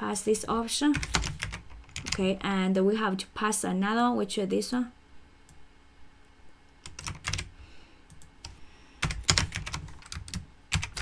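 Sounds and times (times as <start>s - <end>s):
computer keyboard typing: 0.9s - 2.3s, 6.8s - 7.5s, 8.1s - 11.0s.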